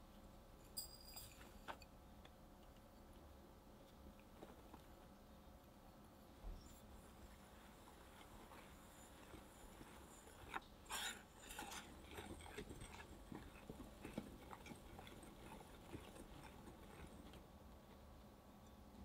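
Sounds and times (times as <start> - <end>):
whisk scraping and tapping glass bowl: 8.1 - 17.4.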